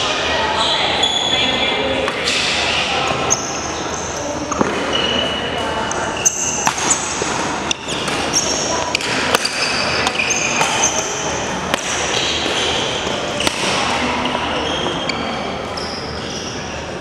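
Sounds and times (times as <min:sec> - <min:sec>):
distant voices: 0:00.0 - 0:17.0
sneakers squeaking on court: 0:00.6 - 0:16.7
racket hitting shuttlecock: 0:04.5 - 0:05.0, 0:05.9 - 0:13.9.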